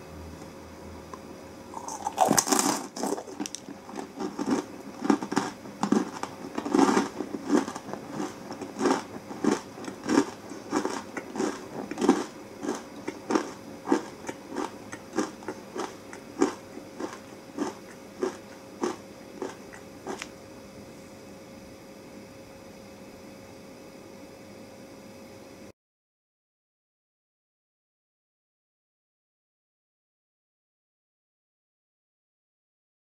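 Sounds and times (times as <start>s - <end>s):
chewing: 1.7s - 20.3s
crunchy food bite: 1.7s - 20.4s.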